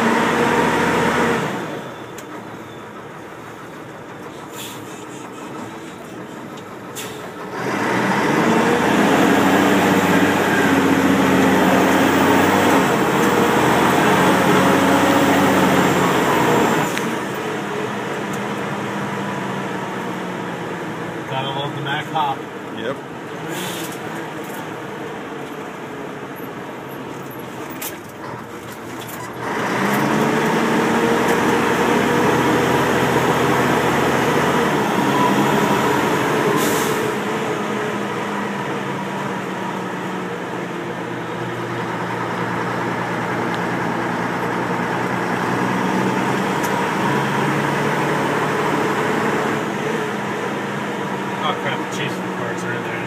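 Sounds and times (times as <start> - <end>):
diesel engine pulling under load: 0.0 - 53.0
short air hiss: 4.5 - 5.0.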